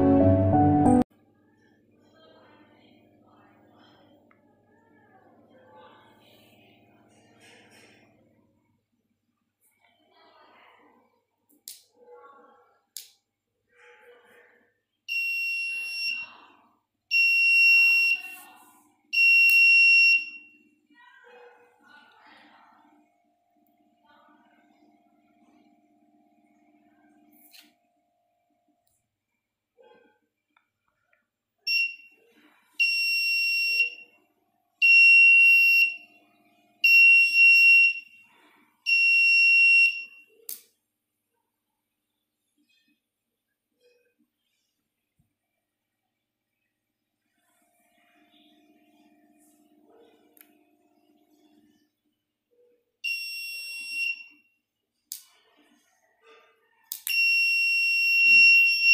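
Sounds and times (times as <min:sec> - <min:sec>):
high-pitched buzzer alarm tone: 0:57.2 - 0:58.9.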